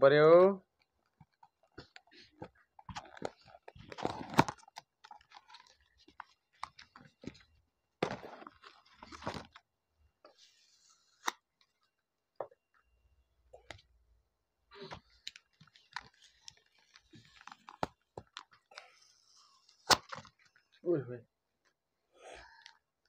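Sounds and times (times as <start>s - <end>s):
packaging rustling: 1.0s - 9.6s, 14.8s - 18.7s.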